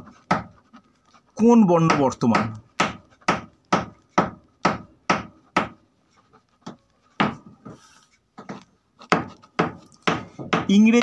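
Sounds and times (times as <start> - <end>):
hammer knocking: 0.0 - 0.6, 1.4 - 5.8, 6.6 - 7.8, 8.4 - 11.0.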